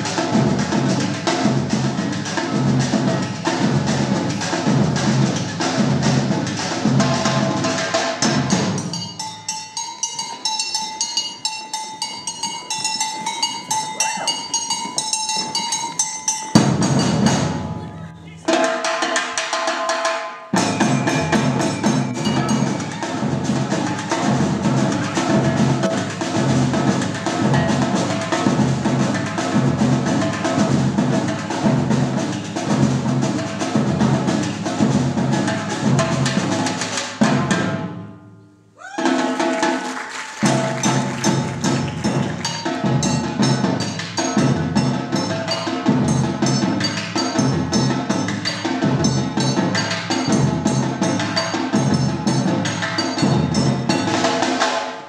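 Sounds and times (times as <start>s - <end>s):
snare drums samba rhythm: 0.0s - 38.0s, 38.8s - 55.0s
light high-pitched percussion: 7.5s - 31.7s, 40.4s - 54.7s.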